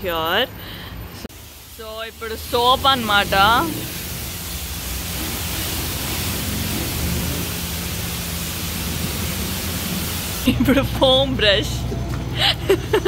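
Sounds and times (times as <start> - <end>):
pressure wand spraying water: 1.3 - 10.8.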